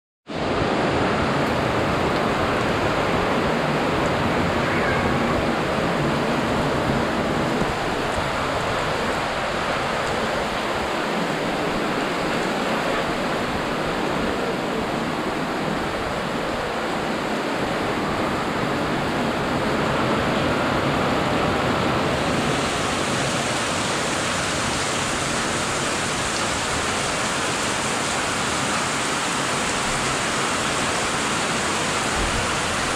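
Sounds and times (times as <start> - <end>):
heavy rain pouring: 0.3 - 32.9.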